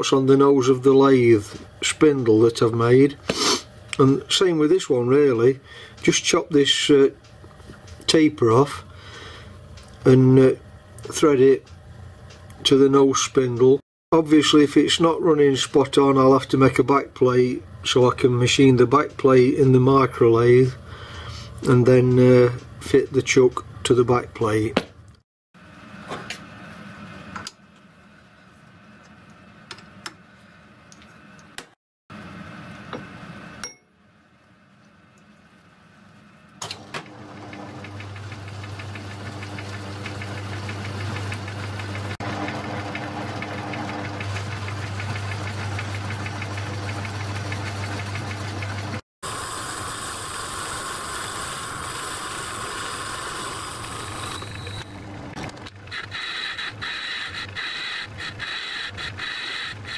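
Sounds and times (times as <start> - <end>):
lathe running: 36.8 - 59.9.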